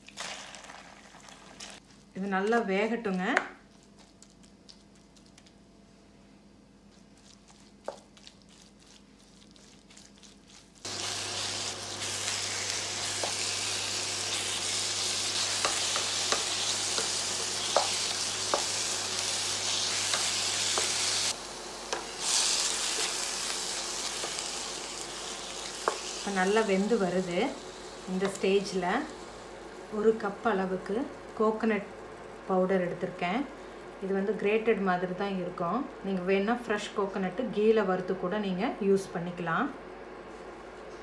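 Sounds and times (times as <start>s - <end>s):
apple frying in ghee sizzling: 0.0s - 2.4s, 7.3s - 36.4s.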